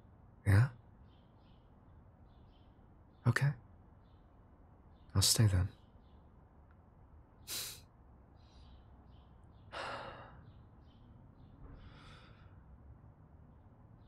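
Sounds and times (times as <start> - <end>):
man breathing: 7.5 - 7.9, 9.7 - 10.5, 11.6 - 12.8.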